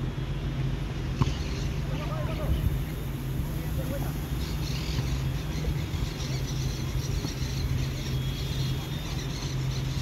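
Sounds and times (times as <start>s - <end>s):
steady low hum: 0.0s - 10.0s
distant voices and shouts: 1.2s - 5.7s.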